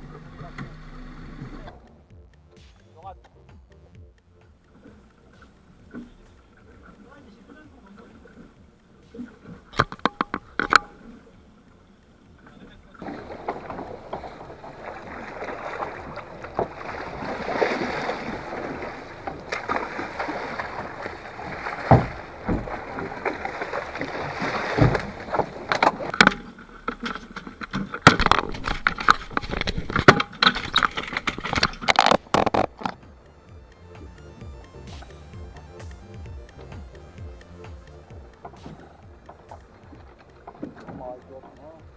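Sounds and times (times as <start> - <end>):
wind and sea water rushing: 4.6 - 41.9
sharp knocks and clatter: 8.5 - 11.0, 19.2 - 33.1.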